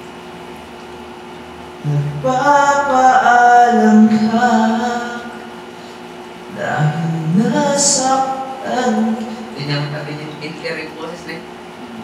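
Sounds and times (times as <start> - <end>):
man singing unaccompanied: 1.8 - 5.5, 6.5 - 10.6.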